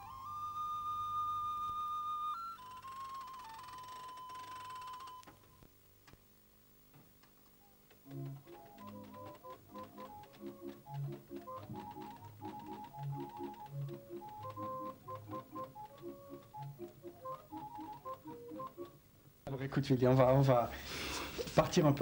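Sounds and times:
electronic organ tune: 0:00.0 - 0:05.3, 0:08.0 - 0:19.1
faint clicks: 0:06.9 - 0:19.4.

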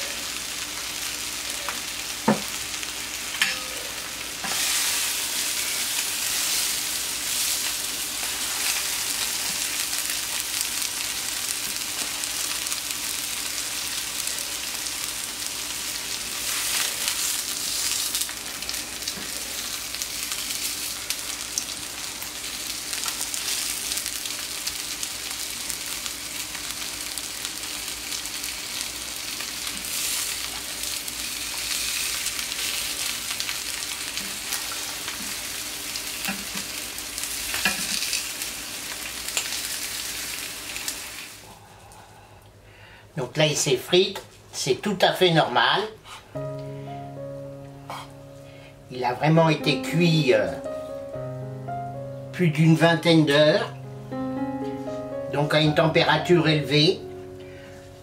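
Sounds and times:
meat sizzling on hot plate: 0:00.0 - 0:41.5.

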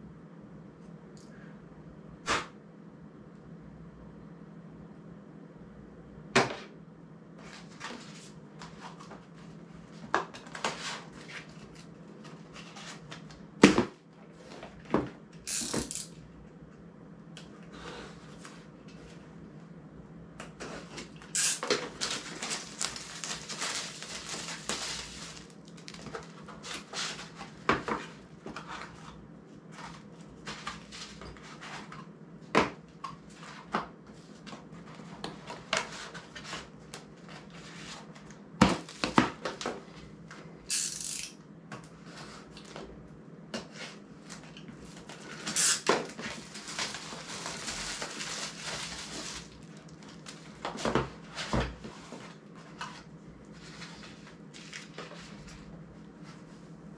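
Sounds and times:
metal parts clicking and clinking: 0:15.5 - 0:16.1, 0:40.7 - 0:41.3
rustling: 0:20.8 - 0:27.4.

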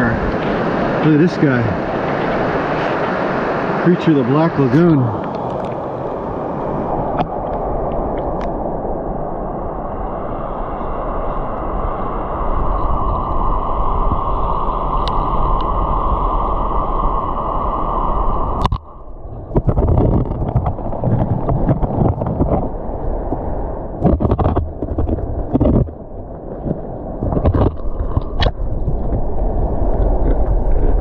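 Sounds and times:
stream water rushing: 0:00.0 - 0:08.4.

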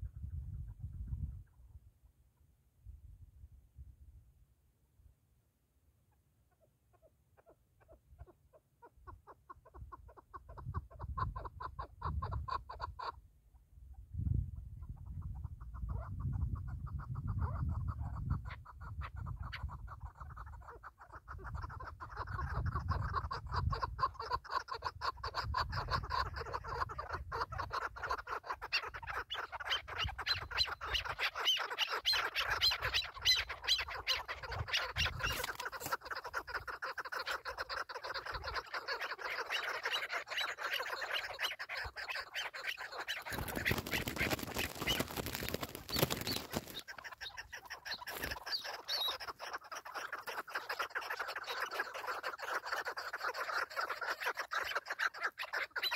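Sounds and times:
rustling noise: 0:43.3 - 0:46.9.

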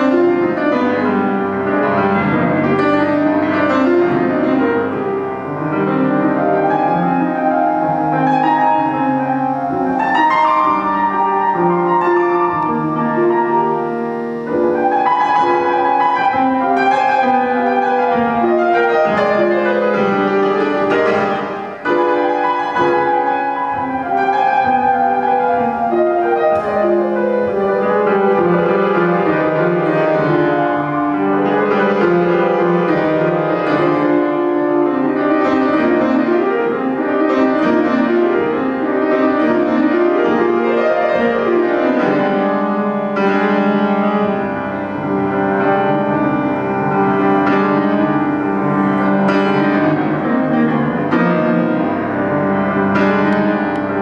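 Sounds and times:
flamenco piano music: 0:00.0 - 0:54.0.

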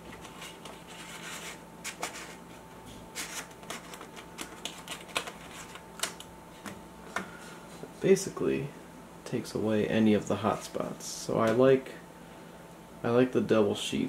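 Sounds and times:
paper crinkling and clicks: 0:00.0 - 0:02.4, 0:03.1 - 0:06.3
faint steady hum: 0:00.0 - 0:14.0.

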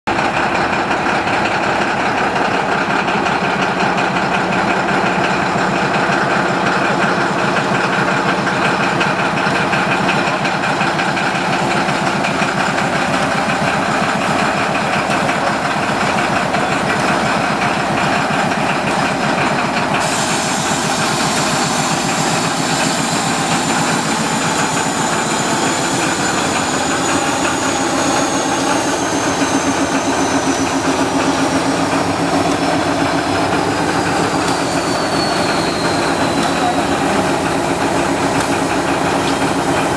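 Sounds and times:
diesel locomotive engine idling: 0:00.1 - 0:39.9
high hiss: 0:20.0 - 0:31.9.

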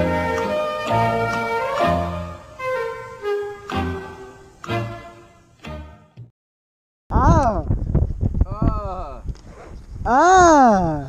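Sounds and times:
background music with bass: 0:00.0 - 0:06.3.

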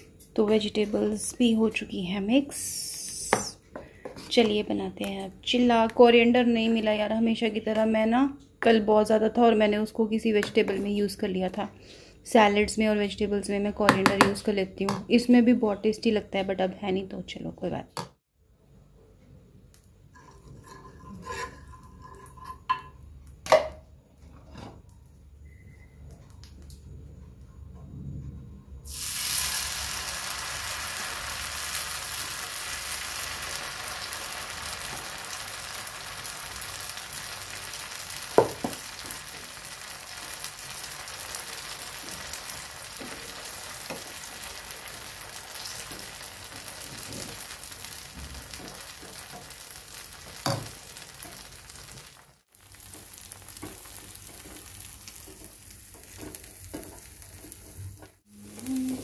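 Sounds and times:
batter sizzling on a hot griddle: 0:28.9 - 0:59.0.

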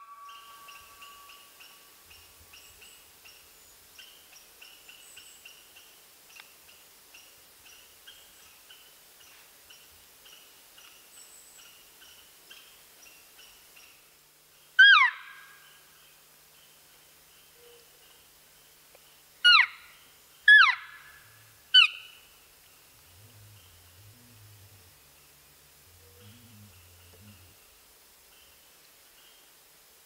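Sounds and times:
faint high chirping: 0:00.0 - 0:05.5
elk mew call: 0:23.1 - 0:27.6.

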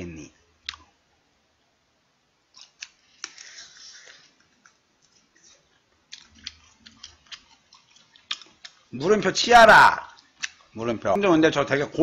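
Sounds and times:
chewing crunchy prawn: 0:02.5 - 0:09.0, 0:10.1 - 0:10.8.

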